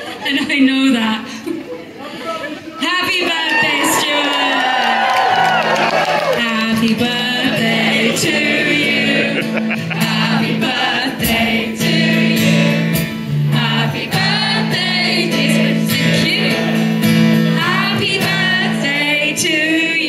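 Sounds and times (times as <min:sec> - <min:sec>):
acoustic guitar: 0:06.2 - 0:20.0.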